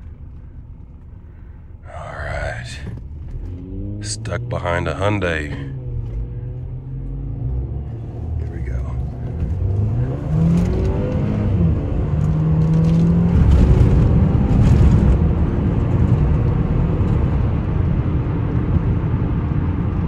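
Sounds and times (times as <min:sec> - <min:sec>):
car engine accelerating: 0:00.0 - 0:20.0
road noise: 0:00.0 - 0:20.0.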